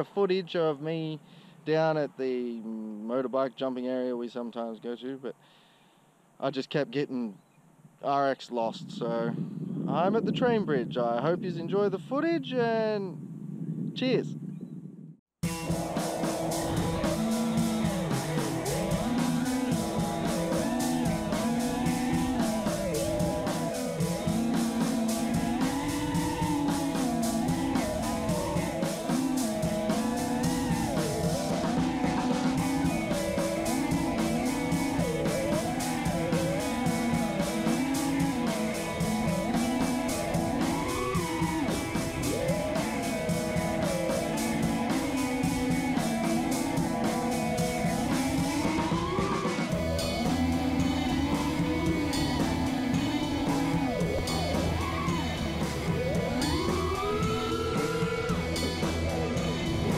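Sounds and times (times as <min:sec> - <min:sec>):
rock music with guitar: 0:15.4 - 0:59.9.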